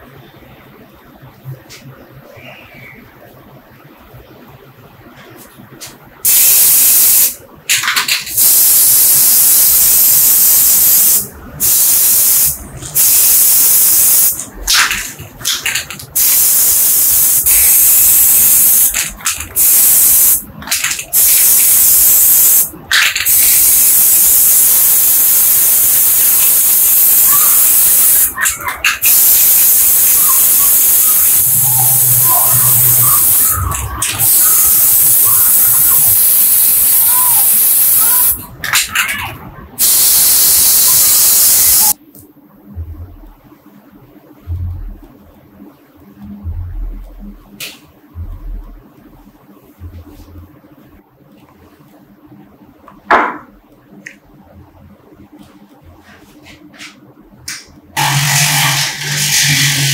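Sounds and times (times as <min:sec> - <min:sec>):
spray paint hissing: 0:06.2 - 0:07.4, 0:08.3 - 0:38.4, 0:39.8 - 0:42.0, 0:58.0 - 0:59.9.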